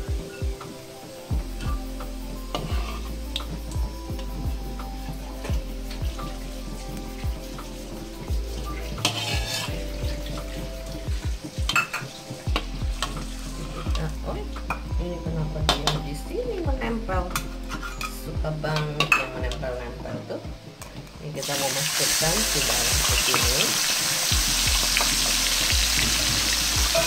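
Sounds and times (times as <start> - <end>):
ginger sizzling in oil: 0.0 - 14.9, 21.4 - 27.0
metal spatula scraping wok: 2.5 - 3.2, 7.5 - 9.9, 13.0 - 14.0, 17.4 - 18.3.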